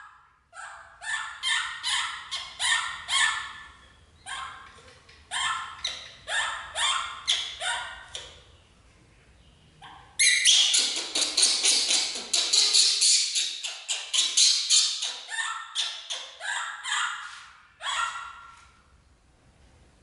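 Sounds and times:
baby monkey shrill squeaking: 0:10.2 - 0:18.3.

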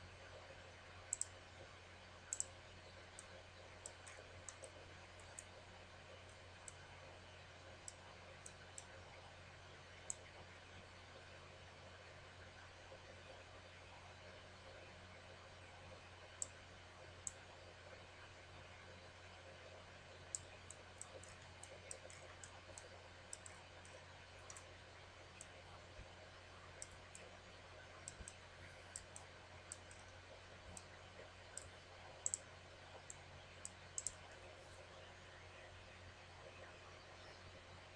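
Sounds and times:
faint low hum: 0:00.0 - 0:37.9
computer mouse clicking: 0:01.1 - 0:01.4, 0:02.3 - 0:02.5, 0:03.1 - 0:05.5, 0:10.0 - 0:10.3, 0:20.3 - 0:24.7, 0:28.0 - 0:30.9, 0:31.5 - 0:34.5.

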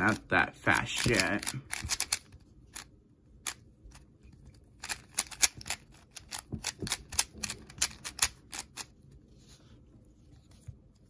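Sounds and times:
puzzle cube layers clicking: 0:00.8 - 0:04.1, 0:04.7 - 0:08.9.

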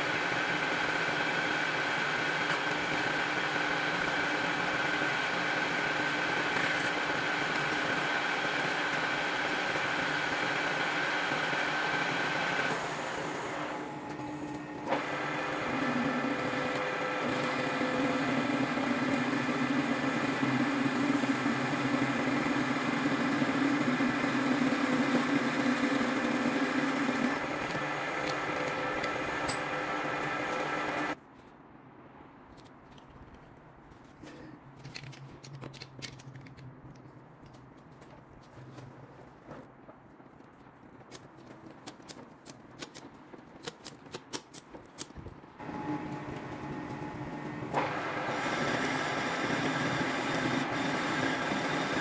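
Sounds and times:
metal lathe whining: 0:00.0 - 0:31.2, 0:45.6 - 0:52.0
drill cutting drone: 0:48.0 - 0:52.0.

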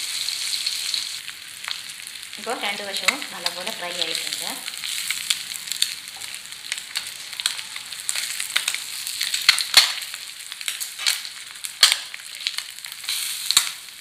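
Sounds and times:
eggs sizzling in hot oil: 0:00.0 - 0:14.0.

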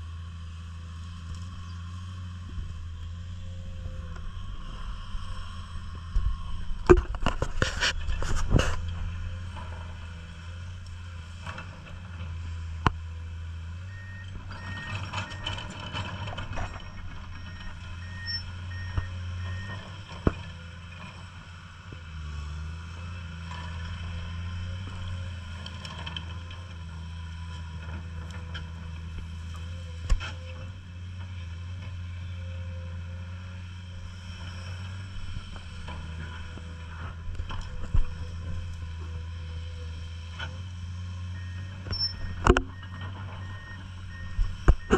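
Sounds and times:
excavator diesel engine running: 0:00.0 - 0:44.9
short beeps: 0:13.8 - 0:15.5, 0:16.8 - 0:19.8, 0:41.4 - 0:44.9.

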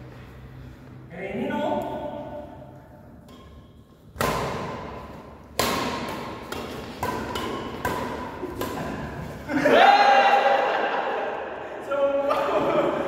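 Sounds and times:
rackets hitting shuttlecock: 0:01.8 - 0:09.5.

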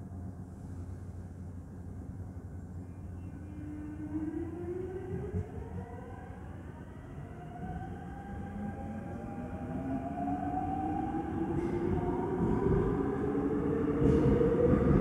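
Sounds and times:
train rolling rumble: 0:07.2 - 0:15.0.

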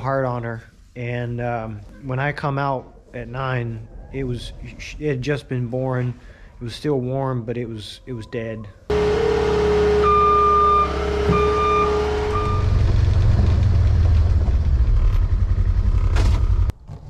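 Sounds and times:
reverse alarm beeping: 0:08.9 - 0:12.8
track loader engine whine: 0:08.9 - 0:16.7
low engine rumble: 0:08.9 - 0:17.0.

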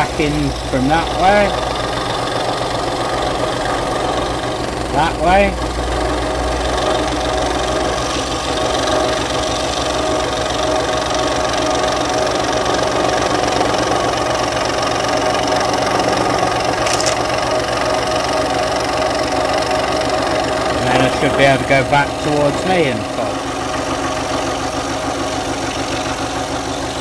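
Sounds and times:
scroll saw cutting wood: 0:06.8 - 0:27.0.

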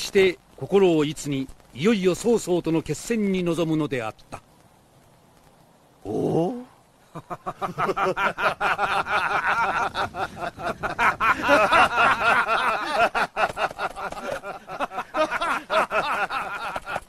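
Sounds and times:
men laughing loudly: 0:07.1 - 0:17.0.

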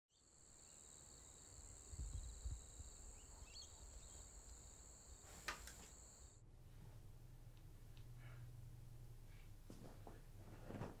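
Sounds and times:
night insects droning: 0:00.1 - 0:06.4.

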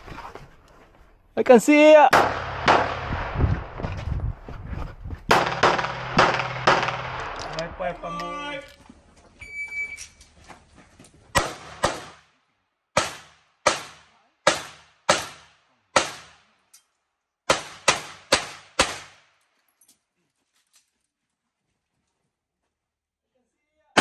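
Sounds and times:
handgun shots with echo: 0:05.3 - 0:07.6.

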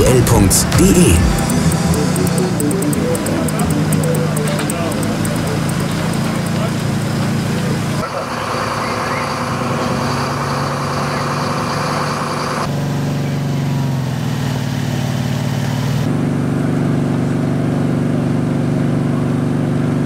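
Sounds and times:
fire engine engines running: 0:00.0 - 0:15.8.

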